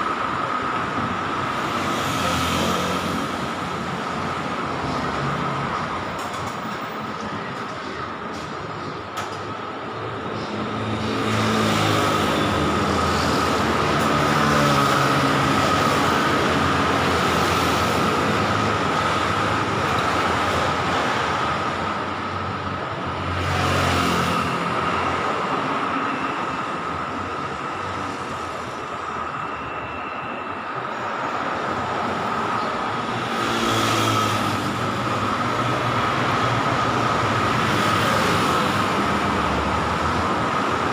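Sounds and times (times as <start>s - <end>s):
cars passing: 9.8s - 40.9s.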